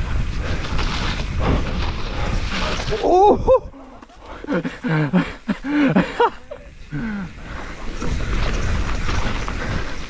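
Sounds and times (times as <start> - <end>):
wind on microphone: 0.0 - 4.0
bike tyre noise: 0.0 - 10.0.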